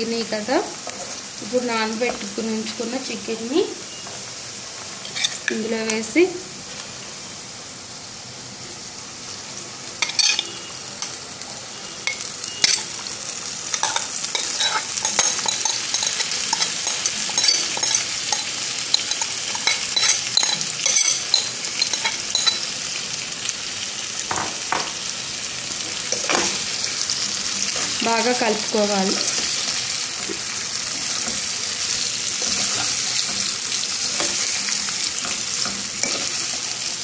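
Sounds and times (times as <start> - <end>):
steel spoon scraping and knocking: 5.0 - 5.6, 13.8 - 22.6
chicken frying in hot oil: 7.0 - 37.0.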